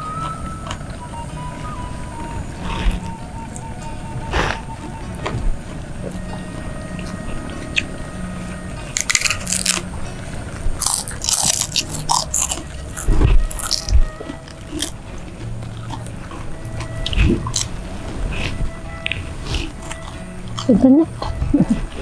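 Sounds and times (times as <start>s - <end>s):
soft background music: 0.0s - 22.0s
crunching and chewing crackers: 8.9s - 9.9s, 10.8s - 17.7s.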